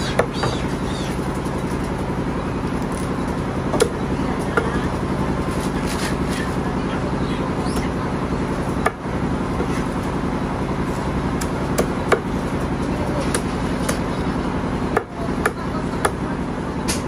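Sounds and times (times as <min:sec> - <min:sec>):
cleaver chopping on wooden block: 0:11.4 - 0:12.3.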